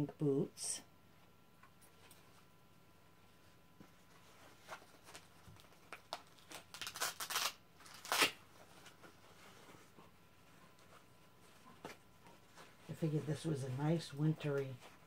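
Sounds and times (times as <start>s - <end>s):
soft rustling of clothes: 1.1s - 5.8s, 8.5s - 15.0s.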